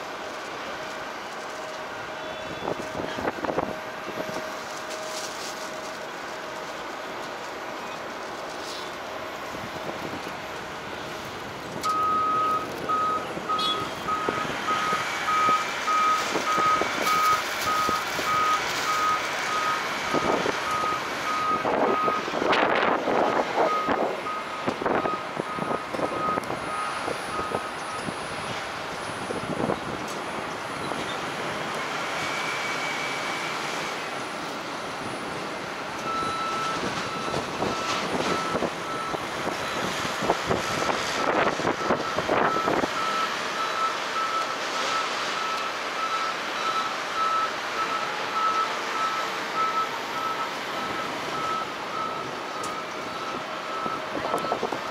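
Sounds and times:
wind noise: 2.4s - 6.0s, 9.4s - 19.2s, 19.9s - 32.4s, 34.9s - 43.1s, 53.0s - 54.9s
reversing alarm beeping: 11.8s - 22.5s, 23.2s - 28.3s, 32.2s - 33.9s, 36.0s - 54.8s.

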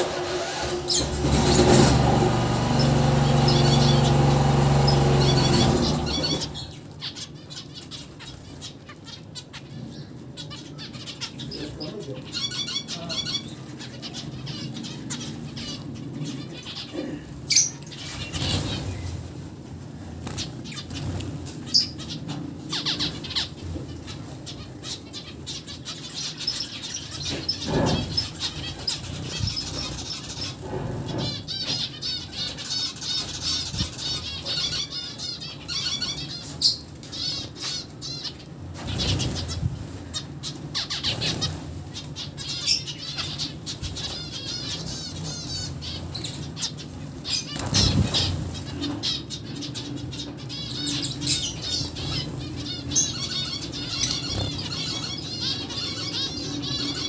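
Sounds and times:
finches chattering: 2.4s - 19.1s, 20.2s - 57.0s
wing flutters: 14.0s - 49.4s, 50.8s - 57.0s.

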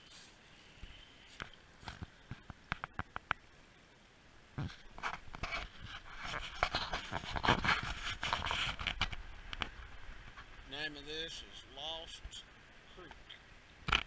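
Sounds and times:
dry leaves rustling and crunching: 0.0s - 0.4s.

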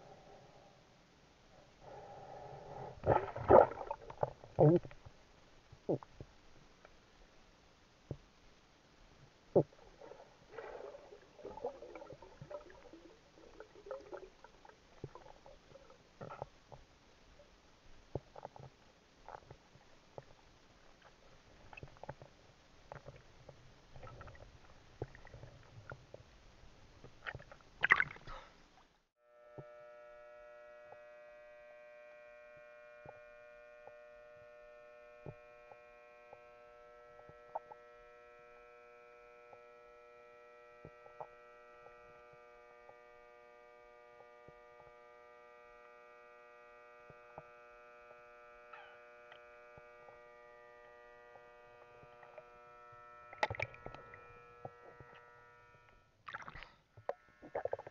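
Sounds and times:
low underwater crackling: 1.8s - 7.3s, 9.1s - 29.0s, 35.3s - 38.0s, 46.9s - 57.9s
steady hum of fixed tones: 28.4s - 56.2s.

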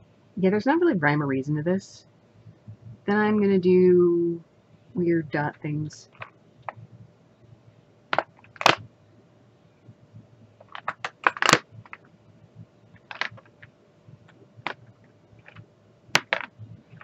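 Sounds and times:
plastic bottles clicking: 13.0s - 13.5s, 16.2s - 17.0s.

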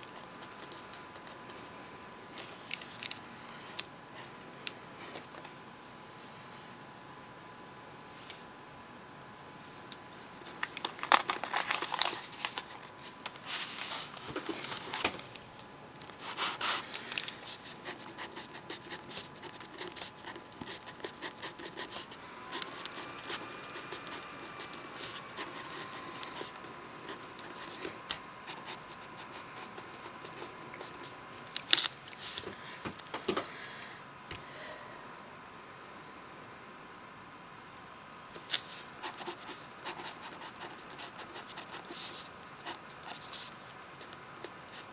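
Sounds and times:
paper rustling: 10.4s - 15.4s
pen scratching on paper: 17.4s - 31.1s, 39.0s - 43.5s.

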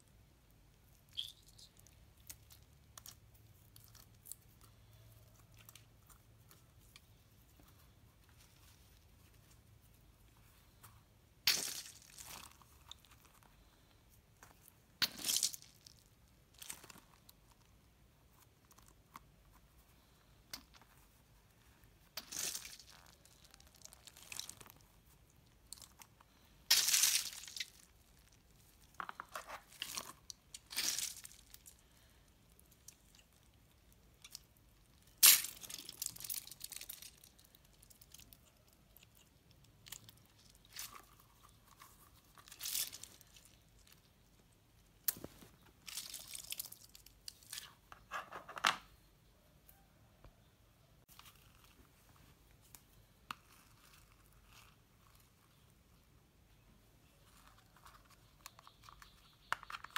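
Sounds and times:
slime and water beads squelching: 0.8s - 6.9s, 22.0s - 44.1s, 45.0s - 47.7s.

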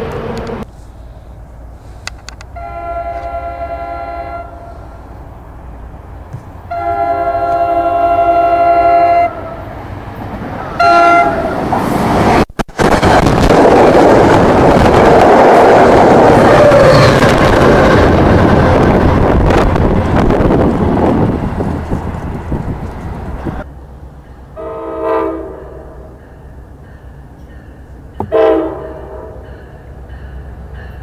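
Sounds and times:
train wheels on rail: 0.0s - 3.8s, 4.4s - 31.0s
train horn blasts: 2.5s - 5.0s, 6.7s - 9.7s, 10.7s - 11.6s, 24.6s - 26.2s, 28.2s - 29.4s.

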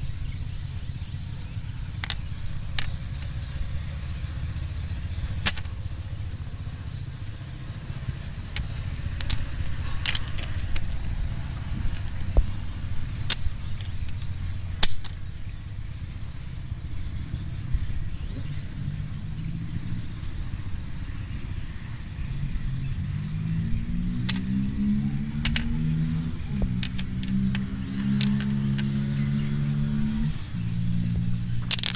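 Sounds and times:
low droning tone: 0.0s - 31.9s
steady low rumble: 0.0s - 31.9s
stone clicking and cracking: 2.0s - 3.4s, 5.4s - 5.7s, 8.5s - 11.0s, 14.8s - 15.2s, 31.6s - 31.9s.

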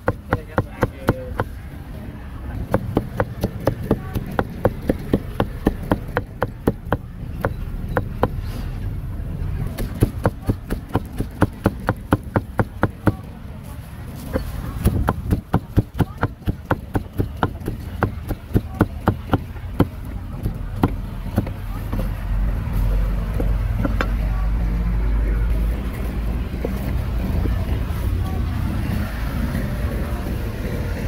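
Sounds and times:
cleaver chopping on wooden block: 0.0s - 1.5s, 2.6s - 8.4s, 9.8s - 13.2s, 14.8s - 21.6s.

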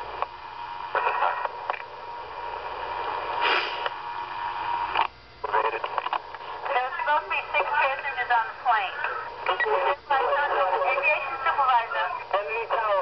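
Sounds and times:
radio static hiss: 0.0s - 13.0s
short bursts of radio noise: 8.3s - 13.0s.

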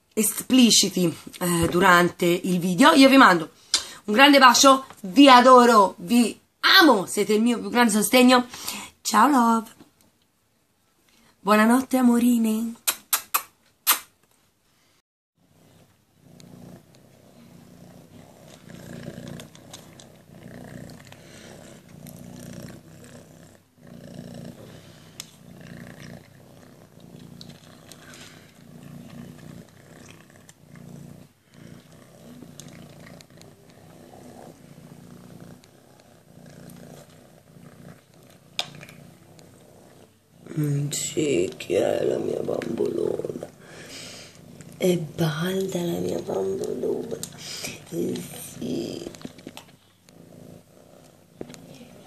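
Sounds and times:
cat purring: 15.4s - 52.0s.

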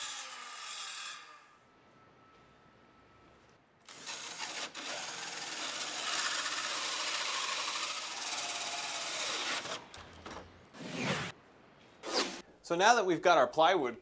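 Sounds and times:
hole saw cutting through wood: 3.9s - 9.9s.

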